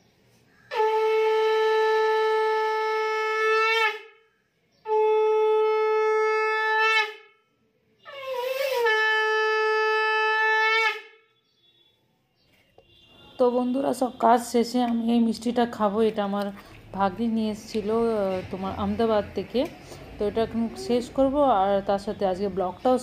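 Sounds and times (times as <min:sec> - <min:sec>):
conch shell blown: 0:00.7 - 0:04.2, 0:04.8 - 0:11.3.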